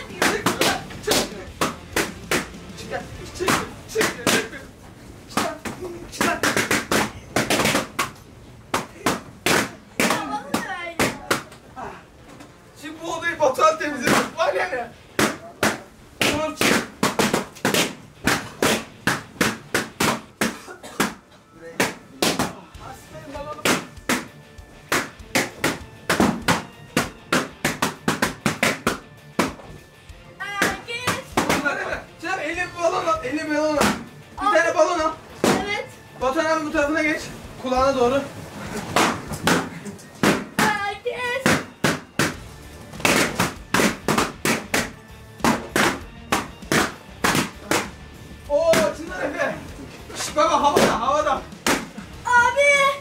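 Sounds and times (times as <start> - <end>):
balloons popping: 0.0 - 4.7, 5.3 - 11.7, 13.9 - 22.6, 23.5 - 29.8, 30.5 - 32.0, 33.5 - 34.2, 35.3 - 35.8, 38.7 - 49.4, 50.2 - 52.2
background music: 0.0 - 53.0.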